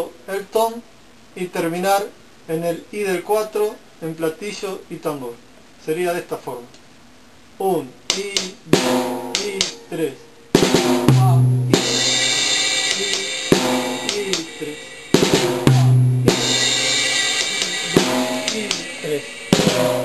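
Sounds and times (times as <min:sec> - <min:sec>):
drum kit reggae rhythm: 0:08.1 - 0:20.0
deep tom hit: 0:10.6 - 0:14.3, 0:15.1 - 0:18.8, 0:19.5 - 0:20.0
cymbal crash: 0:10.6 - 0:20.0.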